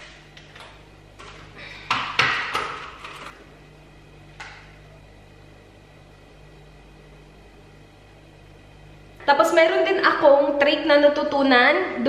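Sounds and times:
kitchen items knocking and clattering: 0:00.5 - 0:03.3.

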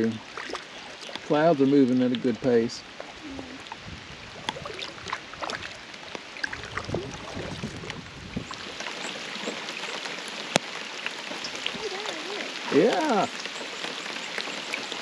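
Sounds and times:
light rain on water: 0:00.0 - 0:15.0.

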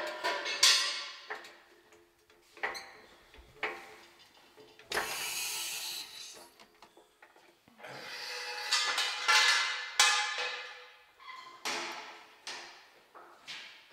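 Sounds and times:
harsh tool noise: 0:05.0 - 0:06.5.

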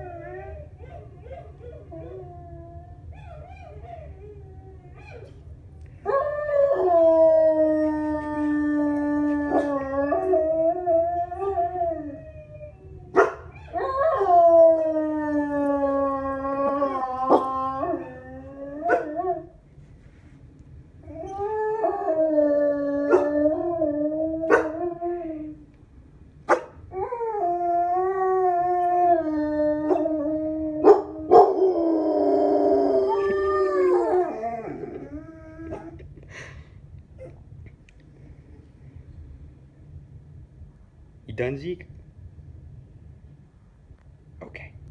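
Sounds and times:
dog howling: 0:06.0 - 0:19.6, 0:21.0 - 0:25.7, 0:26.9 - 0:36.0.

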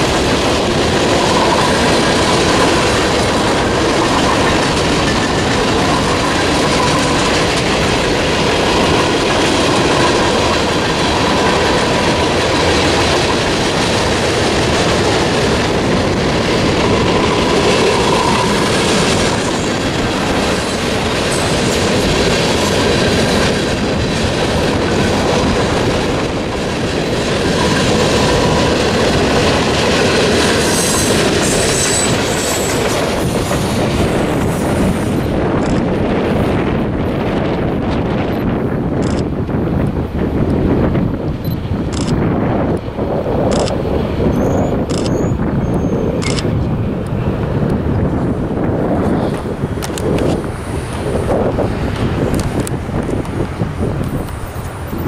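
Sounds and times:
freight train cars rolling: 0:00.0 - 0:55.0.

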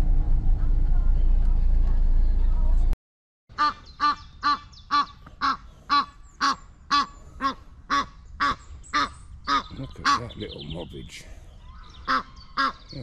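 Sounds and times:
goose honking: 0:03.5 - 0:10.4, 0:12.0 - 0:12.9.

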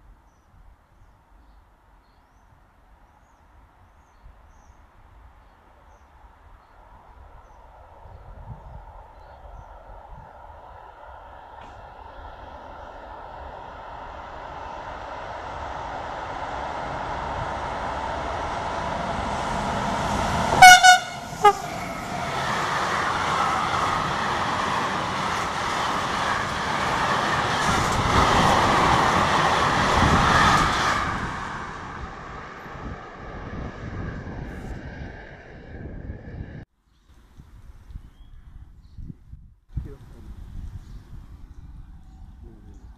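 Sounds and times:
freight train wagons rolling past: 0:06.8 - 0:36.1
train horn blasts: 0:20.5 - 0:22.1.

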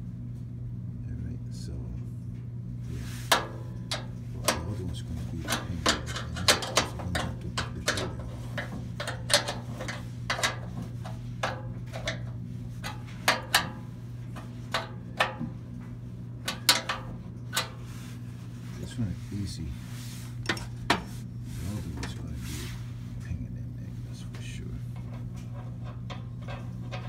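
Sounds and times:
low hum: 0:00.0 - 0:27.0
hand tools tapping metal: 0:03.3 - 0:15.8, 0:16.4 - 0:17.8, 0:20.4 - 0:21.1, 0:25.0 - 0:27.0.

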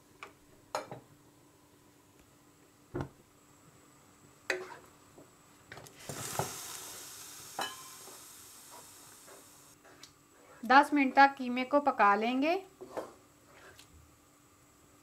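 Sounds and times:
food sizzling: 0:05.9 - 0:09.8.

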